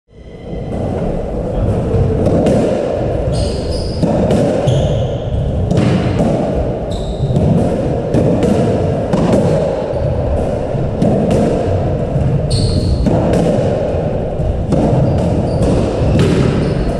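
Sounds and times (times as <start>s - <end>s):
squash ball smacking: 2.2s - 16.9s
shoe squeaks on wooden floor: 3.3s - 4.0s, 4.6s - 5.2s, 6.9s - 7.4s, 12.5s - 13.0s.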